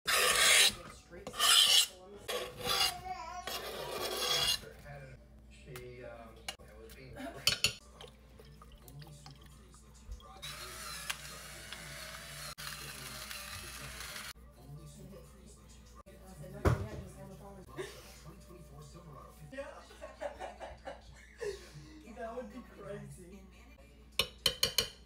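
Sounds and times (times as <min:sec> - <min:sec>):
electric pepper grinder whirring: 0:10.4 - 0:14.3.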